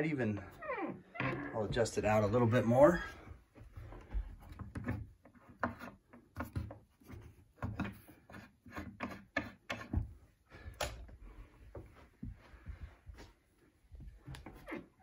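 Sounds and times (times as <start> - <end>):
small clicks and scrapes: 4.4 - 10.0.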